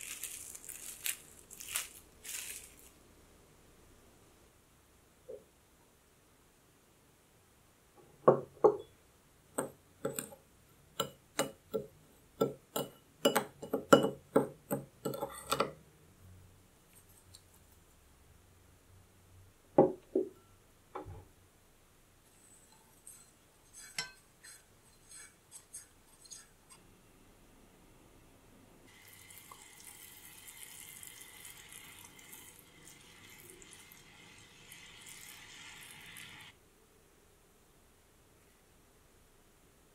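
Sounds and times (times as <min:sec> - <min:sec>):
glass bowl knocking on table: 0:08.2 - 0:08.9, 0:19.8 - 0:20.4
utensil clinking glass bowl: 0:12.4 - 0:15.7
spatula scraping in pot: 0:22.3 - 0:26.9
liquid pouring into saucepan: 0:28.9 - 0:36.5.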